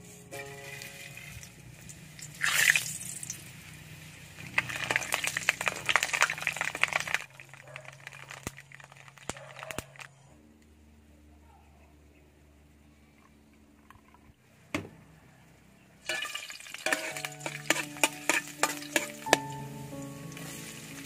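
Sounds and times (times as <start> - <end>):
seeds sizzling in hot oil: 0.6 - 10.0, 16.0 - 21.0
oil crackling and popping: 0.8 - 10.2, 16.0 - 21.0.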